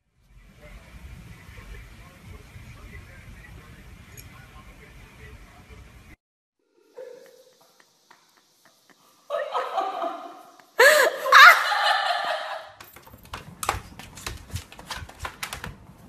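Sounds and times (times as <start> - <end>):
person laughing and squealing: 6.8 - 12.8
puppy pawing at a door: 12.8 - 16.0.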